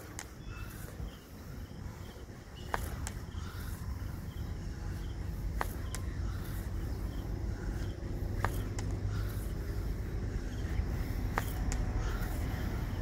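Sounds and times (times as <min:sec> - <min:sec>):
faint chirping: 0:00.0 - 0:13.0
slippers slapping on a board: 0:02.6 - 0:03.2, 0:05.5 - 0:06.1, 0:08.4 - 0:09.0, 0:11.3 - 0:12.2.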